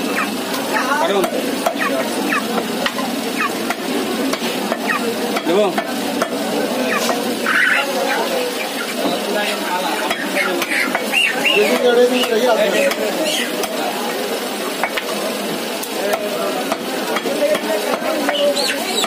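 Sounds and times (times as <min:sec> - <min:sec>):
busy background noise: 0:00.0 - 0:19.0.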